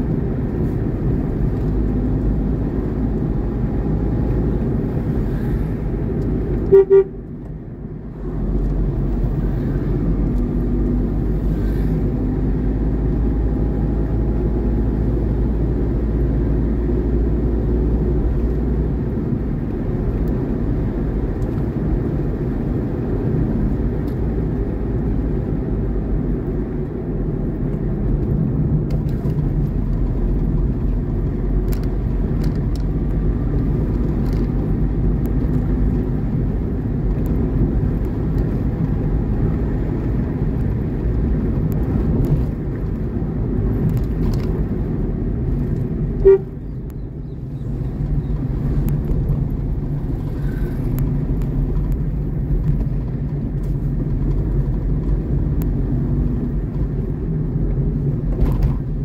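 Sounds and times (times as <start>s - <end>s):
vehicle engine and road noise: 0.0s - 59.0s.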